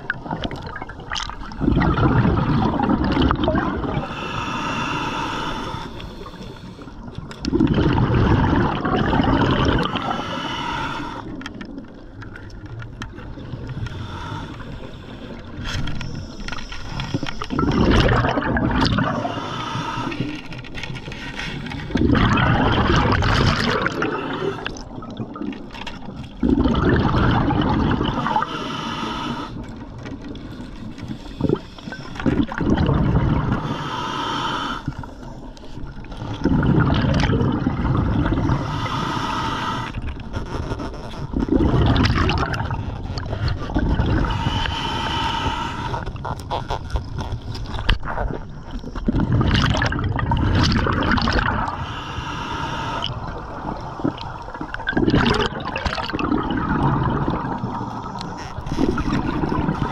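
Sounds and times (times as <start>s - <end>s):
bubbles rushing and gurgling: 0.0s - 59.9s
regulator inhalation hiss: 4.0s - 7.0s, 10.0s - 11.3s, 13.8s - 15.4s, 19.1s - 20.4s, 28.2s - 29.6s, 33.6s - 35.4s, 38.4s - 40.0s, 44.2s - 46.0s, 51.7s - 53.2s.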